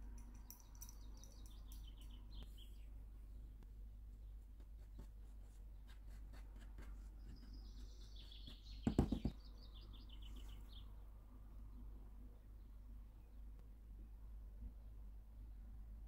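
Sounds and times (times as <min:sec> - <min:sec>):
plastic tub knocking on countertop: 0:08.8 - 0:09.4.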